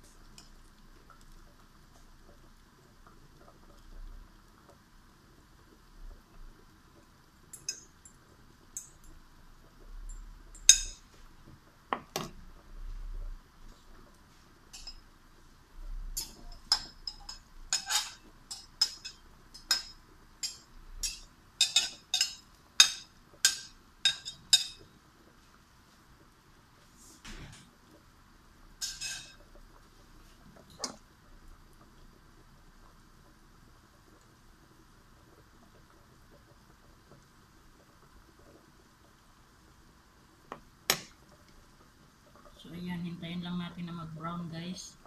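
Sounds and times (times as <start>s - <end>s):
faint steady hiss: 0.0s - 45.0s
kitchenware clinking: 10.7s - 11.0s, 16.2s - 24.8s, 28.8s - 29.4s.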